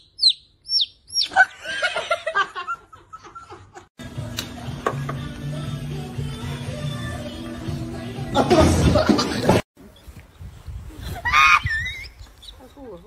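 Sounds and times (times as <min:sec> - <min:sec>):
chick peeping: 0:00.0 - 0:01.3
laughter: 0:01.3 - 0:03.9, 0:08.3 - 0:09.6
background music: 0:04.0 - 0:09.6.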